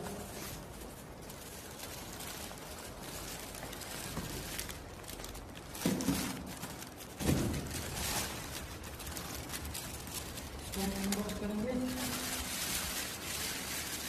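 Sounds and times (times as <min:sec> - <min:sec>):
packaging rustling and crinkling: 0:00.0 - 0:14.0.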